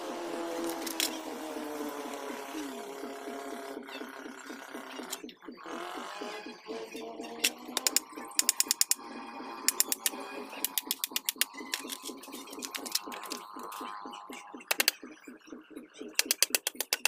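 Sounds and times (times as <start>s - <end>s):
ratcheting screwdriver clicking: 7.4s - 9.0s.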